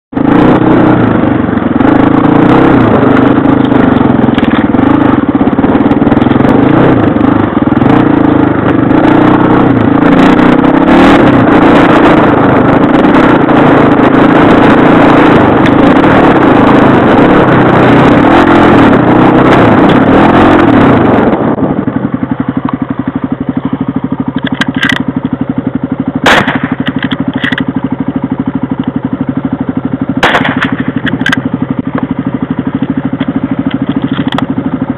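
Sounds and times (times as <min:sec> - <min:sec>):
off-road bike engine: 0:00.1 - 0:34.9
sharp knocks and clatters: 0:24.3 - 0:25.1, 0:26.2 - 0:27.7, 0:30.2 - 0:32.1, 0:33.2 - 0:34.5.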